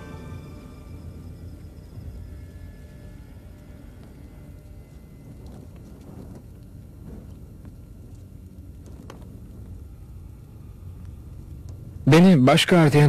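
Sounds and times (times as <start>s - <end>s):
low rumbling ambience: 0.0s - 13.0s
faint soft taps and rustles: 5.3s - 9.8s.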